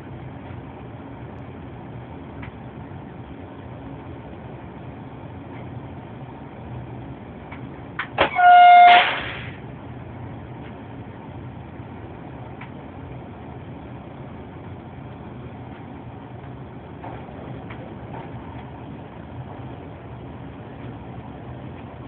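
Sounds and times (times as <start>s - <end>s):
train cab running noise: 0.0s - 22.0s
train horn: 8.2s - 9.5s.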